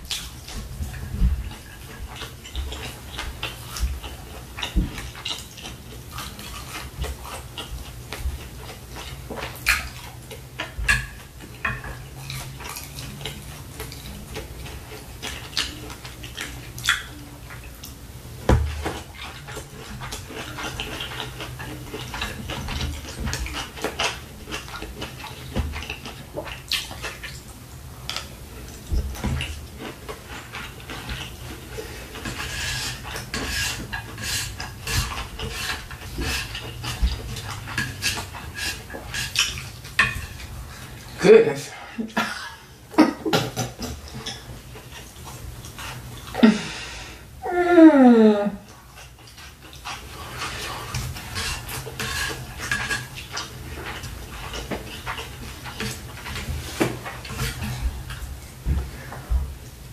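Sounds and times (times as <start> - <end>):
chewing and wet mouth sounds: 0.0 - 48.0, 48.6 - 59.9
spoon scraping plastic plate: 49.7 - 57.8.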